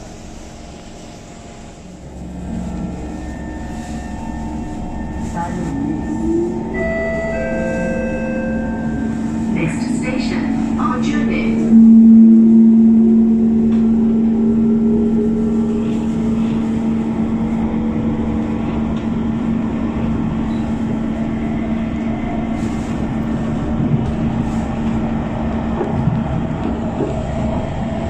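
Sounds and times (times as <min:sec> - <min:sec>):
rail rumble: 0:00.0 - 0:28.0
train passing alongside: 0:00.0 - 0:28.0
train running hum: 0:00.0 - 0:28.0
traction motor whine: 0:11.7 - 0:19.1.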